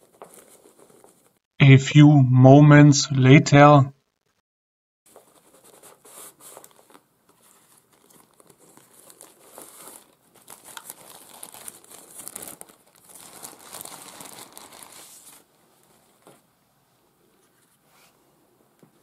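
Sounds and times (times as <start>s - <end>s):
plastic bag crinkling: 6.5s - 15.5s.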